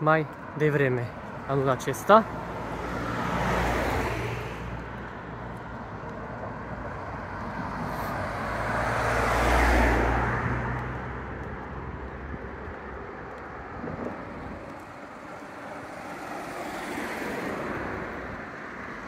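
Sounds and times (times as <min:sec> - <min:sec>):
road traffic hum: 0:00.0 - 0:19.0
car driving past: 0:02.5 - 0:04.8, 0:07.3 - 0:11.2, 0:13.4 - 0:19.0.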